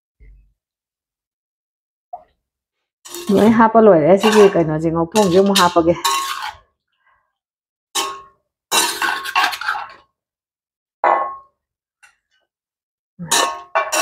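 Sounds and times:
metal skimmer clinking on wok: 0:04.2 - 0:06.5.

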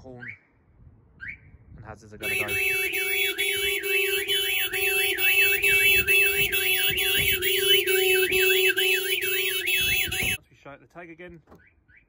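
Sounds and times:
car alarm siren warbling: 0:02.2 - 0:10.4
car horn sounding steadily: 0:02.2 - 0:10.4.

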